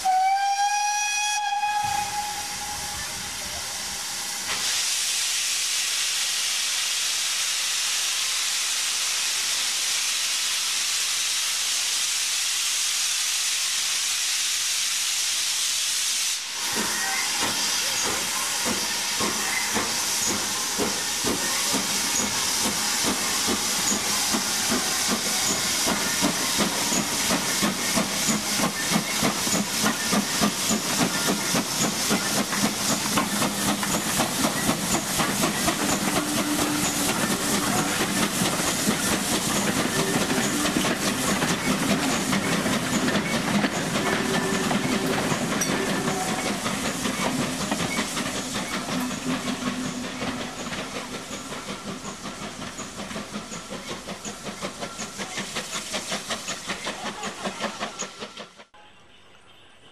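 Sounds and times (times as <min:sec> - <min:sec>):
steam hissing: 0:00.0 - 0:58.7
steam locomotive exhaust beats: 0:00.0 - 0:58.7.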